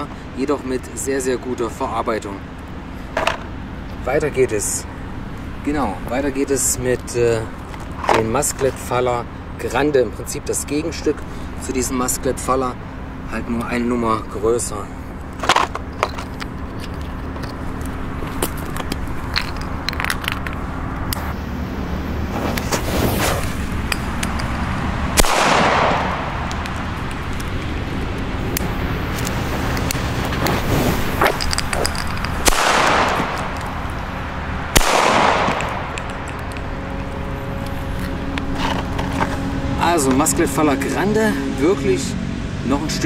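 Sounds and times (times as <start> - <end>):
cardboard tubes clicking and tapping: 18.3 - 21.2, 31.2 - 32.5
firecracker bangs with echo: 25.2 - 26.4, 32.4 - 33.4, 34.7 - 36.0.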